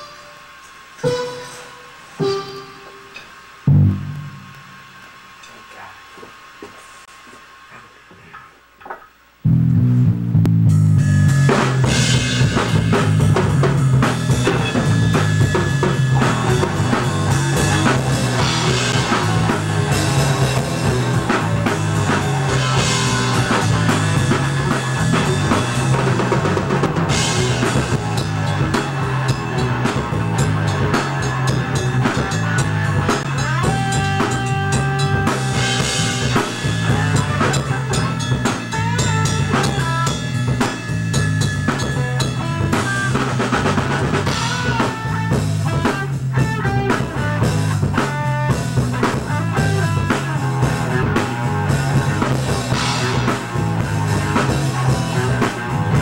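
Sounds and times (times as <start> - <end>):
cymbal crashes: 0.0 - 5.0
drum kit playing: 0.0 - 5.5, 9.4 - 56.0
guitar: 0.0 - 56.0
low bass line: 3.7 - 4.8, 9.4 - 48.0, 48.6 - 56.0.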